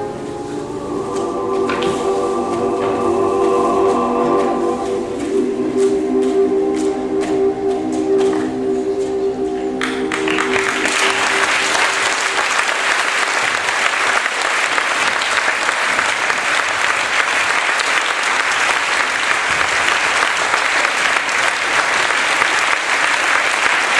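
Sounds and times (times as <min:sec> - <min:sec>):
held music chord: 0:00.0 - 0:13.8
audience applauding: 0:00.8 - 0:08.5, 0:09.8 - 0:23.9.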